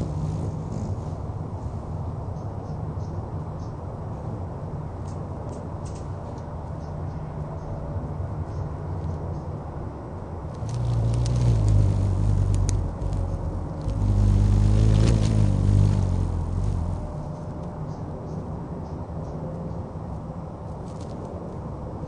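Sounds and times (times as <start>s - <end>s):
hummingbird wings whirring: 0.0s - 1.8s, 10.5s - 17.5s
faint high ticks: 10.5s - 15.3s.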